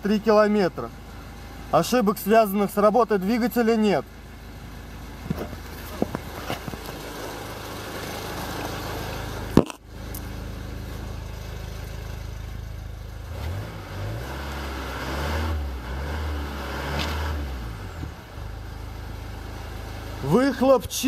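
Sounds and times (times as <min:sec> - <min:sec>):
diesel engine idling: 0:00.0 - 0:15.0, 0:17.4 - 0:21.0
car door shutting: 0:05.2 - 0:07.1.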